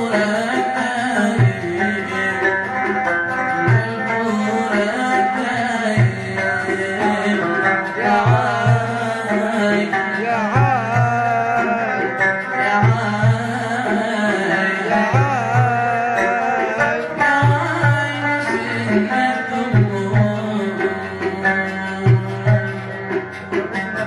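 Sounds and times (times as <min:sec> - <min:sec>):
hand drum beat: 0:00.0 - 0:24.0.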